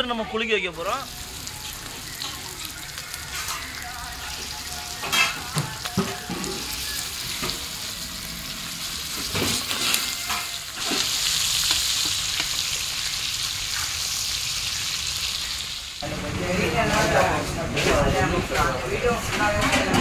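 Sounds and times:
fish sizzling in hot oil: 0:00.5 - 0:16.1.

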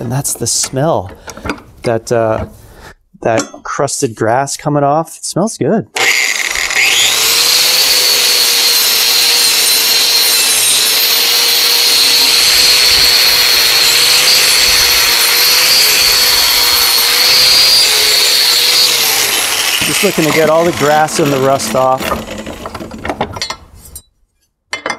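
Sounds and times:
angle grinder wire brush scrubbing metal: 0:07.6 - 0:23.5.

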